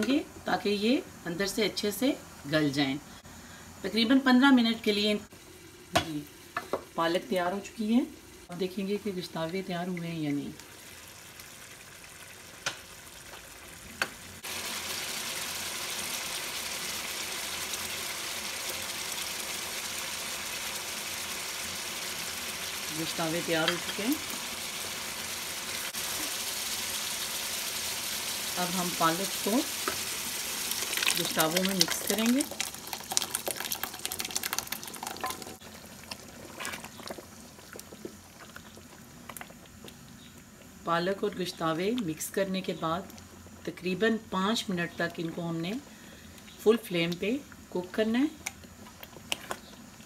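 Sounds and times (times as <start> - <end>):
meatballs sizzling in wok: 4.9 - 38.3
sauce bubbling and popping: 29.7 - 42.1
puree splattering into a wok: 30.6 - 37.1
wooden spoon stirring: 30.8 - 39.5.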